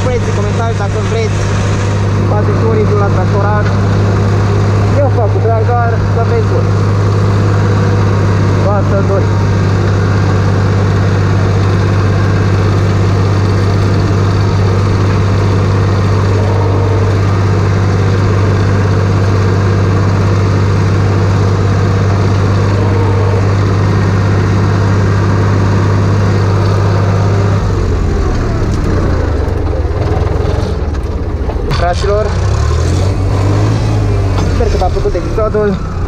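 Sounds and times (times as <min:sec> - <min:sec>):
tractor engine running: 0:00.0 - 0:36.0.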